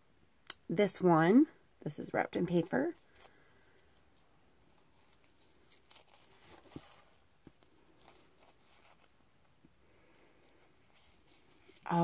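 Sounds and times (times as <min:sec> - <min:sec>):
paper rustling: 0:02.9 - 0:09.2.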